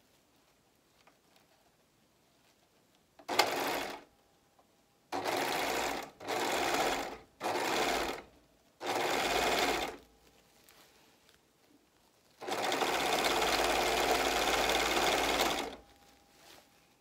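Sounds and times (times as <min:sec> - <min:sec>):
overlock machine stitching: 0:03.2 - 0:04.1, 0:05.1 - 0:10.0, 0:12.4 - 0:15.8.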